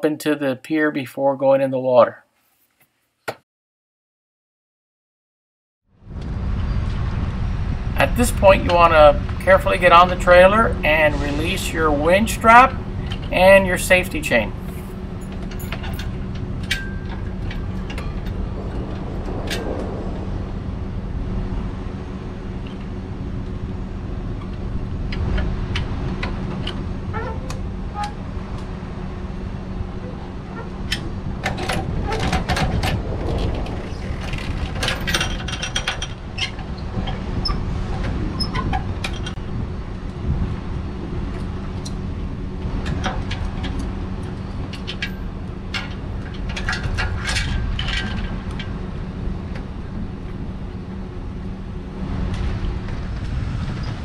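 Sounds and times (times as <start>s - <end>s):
metal clicks of winch and chain: 12.4s - 18.4s, 30.9s - 37.6s, 42.8s - 48.7s.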